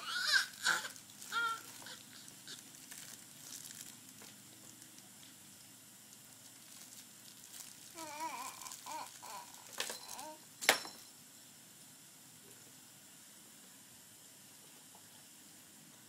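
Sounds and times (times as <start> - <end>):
baby high-pitched vocal sounds: 0.0 - 2.6, 7.9 - 10.4.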